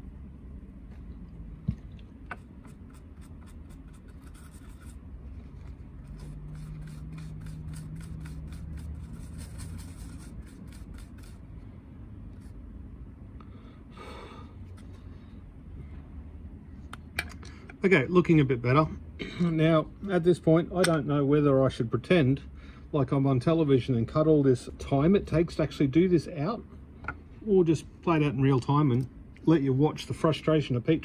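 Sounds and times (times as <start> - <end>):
hand tools scraping and ticking: 6.0 - 11.4.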